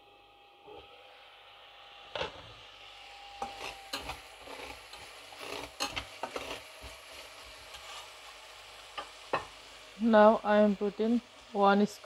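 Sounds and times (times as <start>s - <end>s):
metal spatula scraping pan: 3.4s - 8.1s
curry sauce sizzling: 3.4s - 12.0s.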